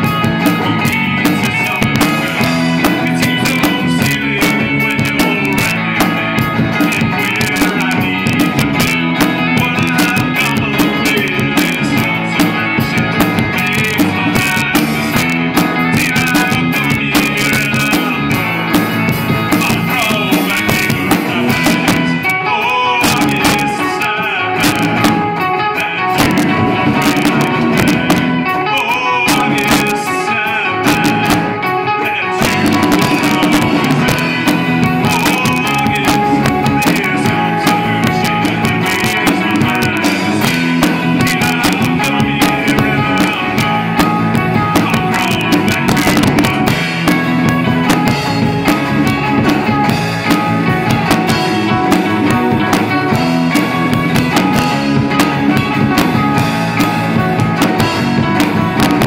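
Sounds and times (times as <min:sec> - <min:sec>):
rock band playing loud: 0:00.0 - 0:59.0
steady drum hits: 0:24.6 - 0:25.5, 0:26.2 - 0:28.5, 0:32.4 - 0:59.0.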